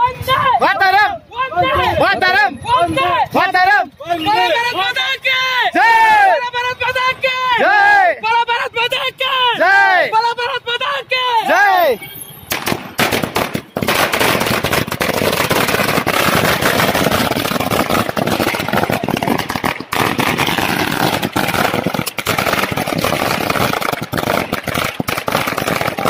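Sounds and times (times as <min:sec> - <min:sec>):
firecrackers crackling: 0:12.5 - 0:26.0.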